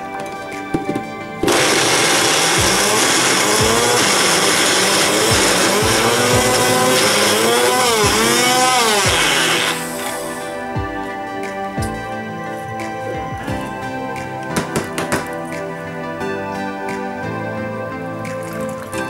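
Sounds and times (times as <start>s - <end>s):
blender grinding: 1.4s - 10.6s.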